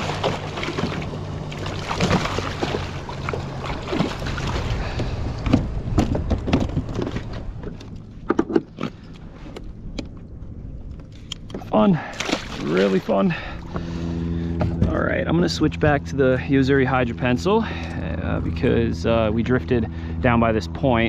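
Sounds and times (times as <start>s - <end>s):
fish splashing in water: 0.0s - 5.2s, 12.0s - 13.2s.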